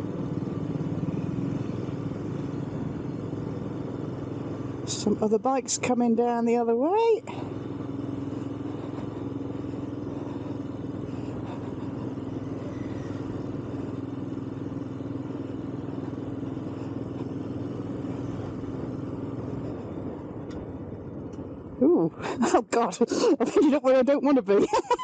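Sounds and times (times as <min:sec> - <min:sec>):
motorcycle engine running: 0:00.0 - 0:22.2
wind and tyre noise: 0:00.0 - 0:25.0.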